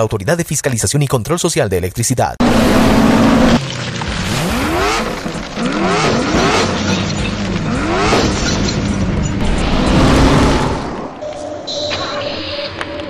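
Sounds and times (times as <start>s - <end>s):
car engine revving: 2.4s - 11.2s.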